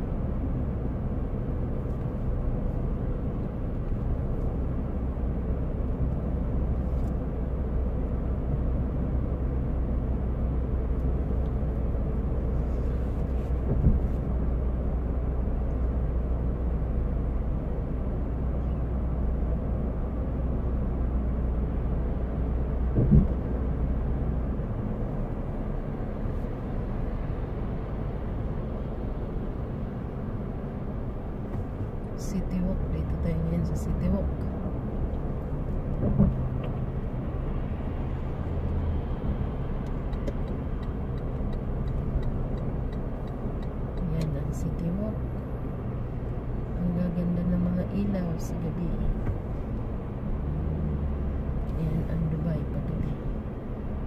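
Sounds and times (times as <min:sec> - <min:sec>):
car cabin road noise: 0:00.0 - 0:54.0.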